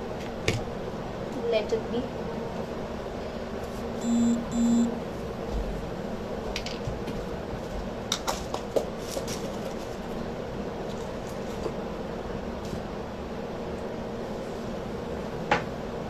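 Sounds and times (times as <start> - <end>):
low room hum: 0.0 - 16.0
short electronic beeps: 4.0 - 4.9.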